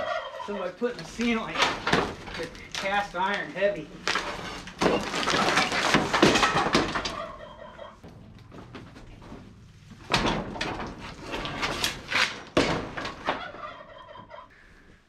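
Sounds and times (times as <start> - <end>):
debris crashing down: 0.9 - 13.4
boards being pried off: 1.0 - 3.4, 4.0 - 7.2, 8.6 - 13.6.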